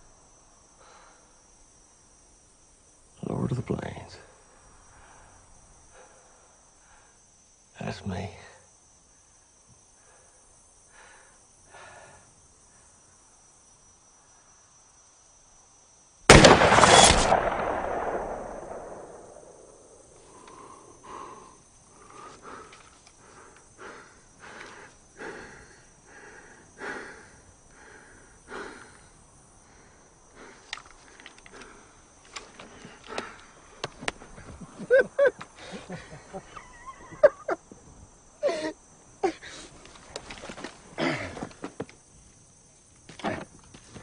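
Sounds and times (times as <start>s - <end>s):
rifle shot with echo: 16.3s - 20.1s.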